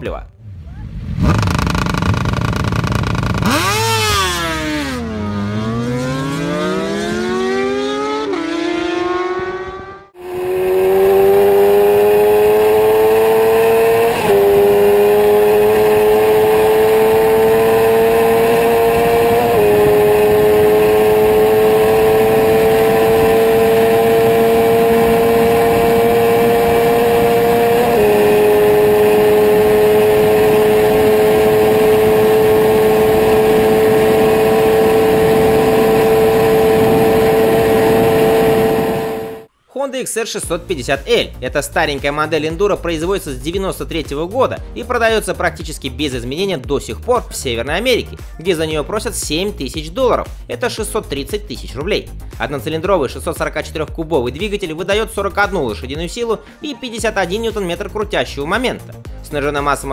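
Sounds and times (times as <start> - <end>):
motorcycle engine revving hard: 0.4 - 39.5.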